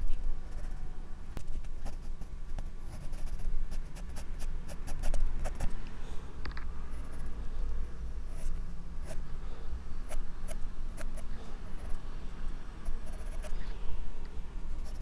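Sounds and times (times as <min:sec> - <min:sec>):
pencil scratching on paper: 0:02.9 - 0:05.7, 0:12.8 - 0:13.6, 0:14.8 - 0:15.0.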